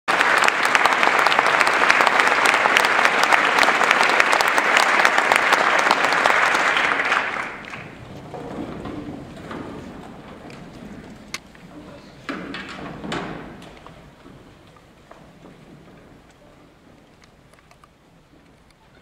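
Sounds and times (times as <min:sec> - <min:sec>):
audience applauding: 0:00.1 - 0:08.8.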